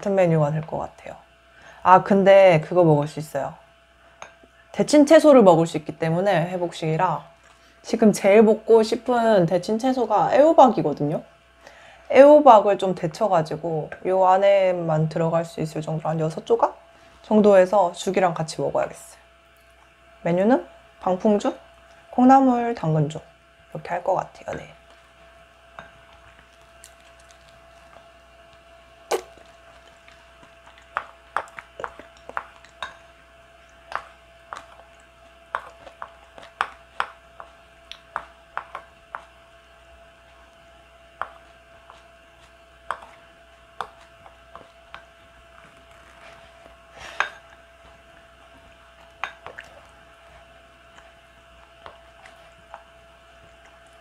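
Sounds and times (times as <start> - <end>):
faint steady hum: 0.0 - 54.0.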